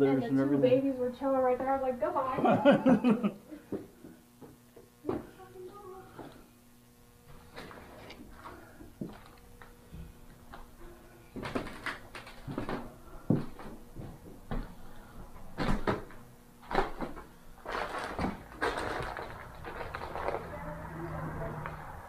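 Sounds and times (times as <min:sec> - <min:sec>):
crunching steps on wooden floor: 0:11.4 - 0:14.9, 0:15.5 - 0:20.9.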